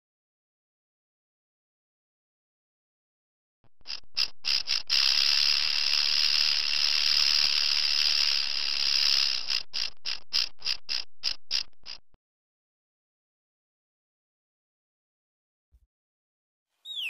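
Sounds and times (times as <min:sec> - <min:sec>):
rattlesnake tail rattling: 0:03.7 - 0:12.2.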